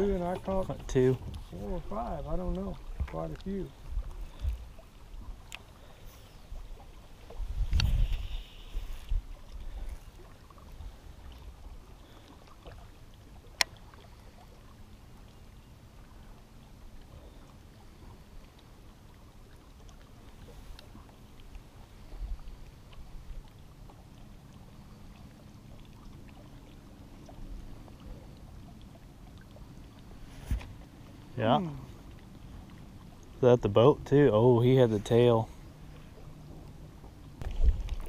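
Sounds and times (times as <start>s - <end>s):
wind and water rumble: 0.0s - 38.0s.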